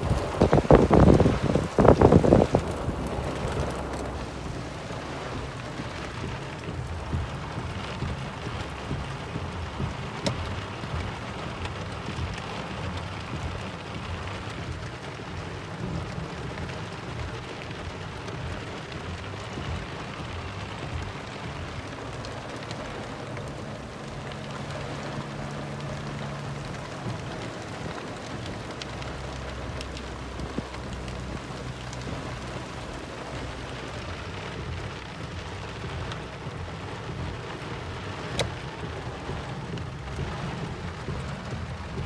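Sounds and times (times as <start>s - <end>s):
wind blast on microphone: 0.0s - 5.5s
heavy rain falling: 0.0s - 42.0s.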